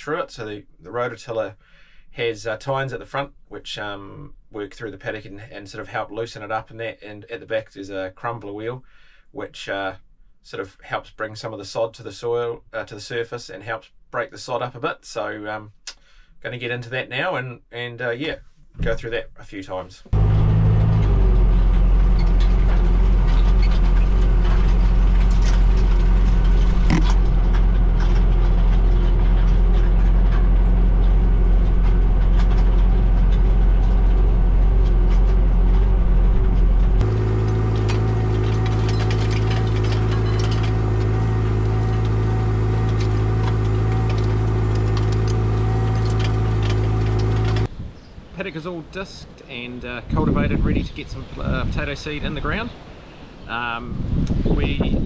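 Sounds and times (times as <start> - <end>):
tractor engine under load: 20.1 - 47.7
rototiller in soil: 20.2 - 47.7.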